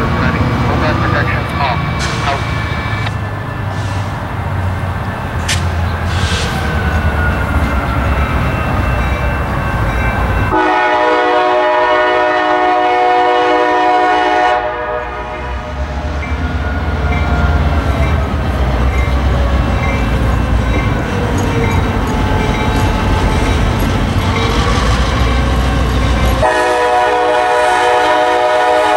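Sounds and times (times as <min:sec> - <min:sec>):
locomotive rumble: 0:00.0 - 0:28.9
locomotive air horn blast: 0:10.5 - 0:15.8, 0:26.4 - 0:28.9.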